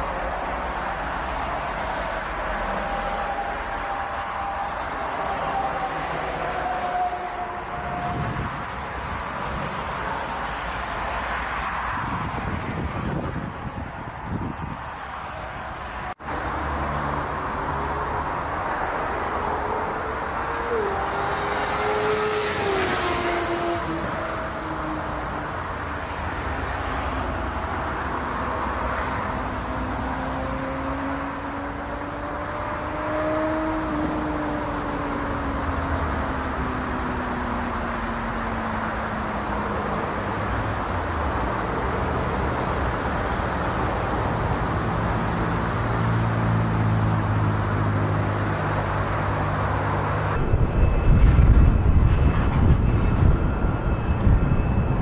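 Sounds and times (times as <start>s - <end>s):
approaching jet: 0.0s - 55.0s
wind rumble on microphone: 7.7s - 10.9s, 11.6s - 16.1s, 49.8s - 55.0s
jet engine whining: 49.2s - 55.0s.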